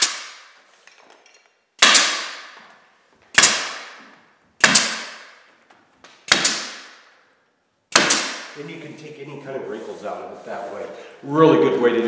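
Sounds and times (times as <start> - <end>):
pneumatic stapler firing: 0.0 - 0.5, 1.8 - 2.6, 3.3 - 4.0, 4.6 - 5.3, 6.2 - 7.0, 7.9 - 8.5.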